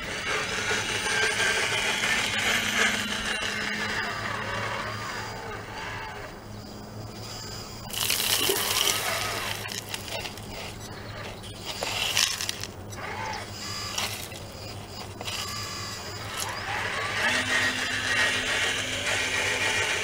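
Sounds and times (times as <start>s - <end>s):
model motors humming and whining: 0.0s - 20.0s
gravel pouring from bucket: 7.9s - 10.4s.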